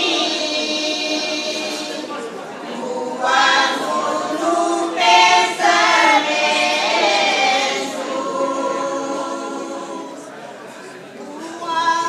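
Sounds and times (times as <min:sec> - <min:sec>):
women's choir singing long notes: 0:00.0 - 0:10.4.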